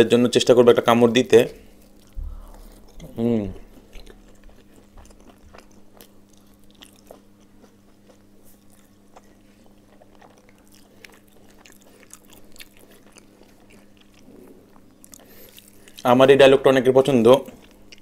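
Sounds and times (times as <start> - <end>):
low hum: 1.4 - 7.2
person chewing food: 1.5 - 16.1, 17.4 - 18.0.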